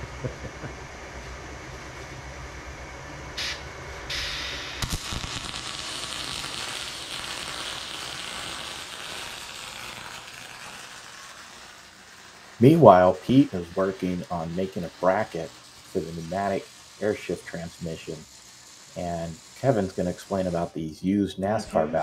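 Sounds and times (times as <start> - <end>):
low hum: 0.0 - 6.6
arc welding crackling hiss: 3.3 - 22.0
welding arc strike: 3.4 - 20.8.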